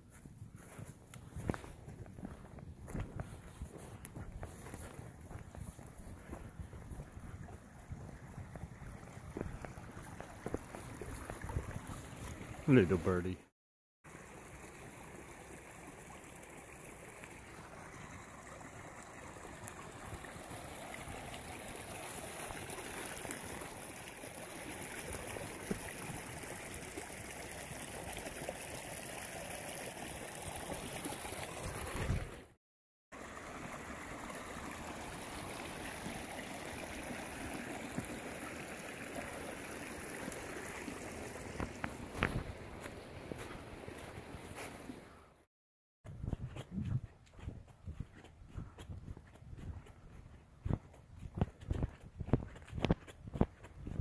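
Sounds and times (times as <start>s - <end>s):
stream trickling water: 0.0s - 13.4s, 14.0s - 45.5s, 46.3s - 54.0s.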